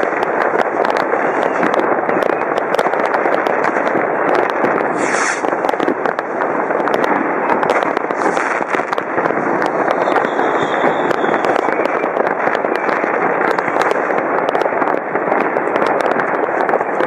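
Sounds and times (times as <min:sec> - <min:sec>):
firework hiss: 0:00.0 - 0:17.0
fireworks and firecrackers banging: 0:00.0 - 0:17.0
steady rumble: 0:00.0 - 0:17.0
thin firework whistle: 0:05.0 - 0:05.4, 0:09.4 - 0:13.1.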